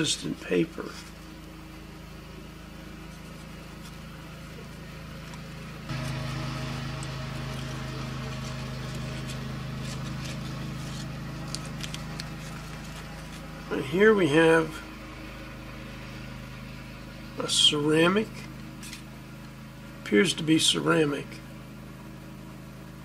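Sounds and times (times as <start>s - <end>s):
steady machine hum: 0.0s - 23.0s
paper crinkling: 5.9s - 13.5s.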